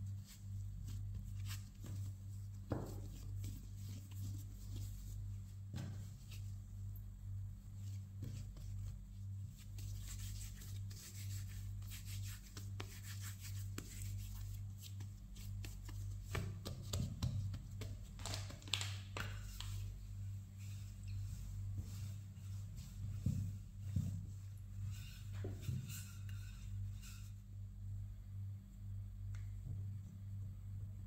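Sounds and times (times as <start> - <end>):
steady low hum: 0.0 - 18.2, 19.4 - 31.0
hands patting bread dough: 0.1 - 6.6, 7.8 - 20.0
rolling pin on dough: 0.1 - 6.6, 7.8 - 18.1, 19.4 - 27.6.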